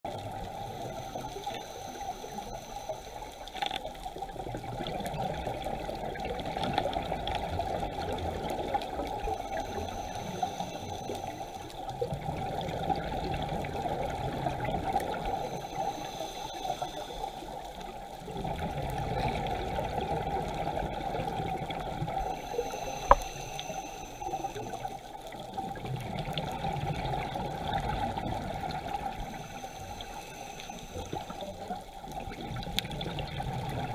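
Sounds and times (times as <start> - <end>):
regulator breathing hiss: 0.5 - 3.6, 9.2 - 12.0, 14.9 - 18.1, 22.1 - 25.3, 29.0 - 31.8.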